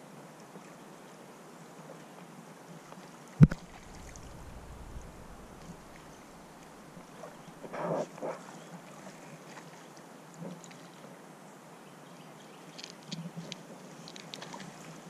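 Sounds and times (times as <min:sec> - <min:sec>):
canoe bump: 0:03.4 - 0:06.8
faint hiss of water: 0:03.4 - 0:11.7.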